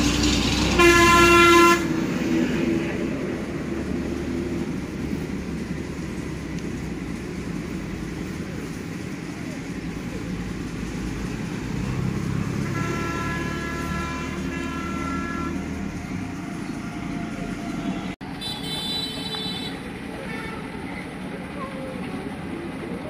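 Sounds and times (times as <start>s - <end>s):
low rumble of traffic: 0.0s - 23.0s
higher-pitched horn toot: 0.7s - 1.9s, 12.6s - 15.7s
long vehicle horn blast: 0.7s - 2.0s, 12.4s - 15.9s, 17.2s - 20.7s.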